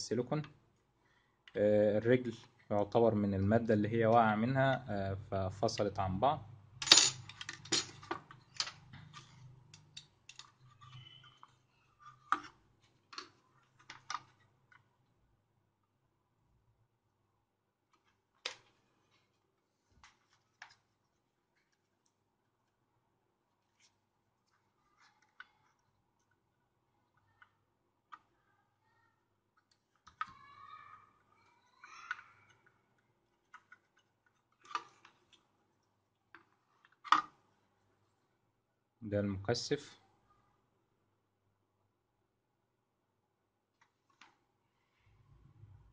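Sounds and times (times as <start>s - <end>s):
faint squeak: 10.6s - 12.2s.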